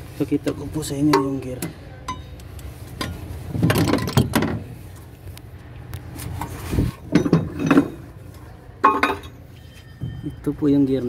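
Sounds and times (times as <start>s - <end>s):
metal tools knocking and scraping: 0.4s - 4.6s, 7.0s - 8.1s, 8.8s - 10.5s.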